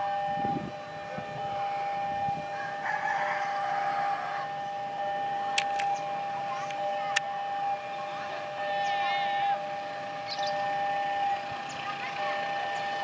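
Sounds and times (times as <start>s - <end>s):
rooster crowing: 2.4s - 4.6s
high electronic tone: 3.5s - 13.0s
sharp clicks: 5.5s - 6.0s.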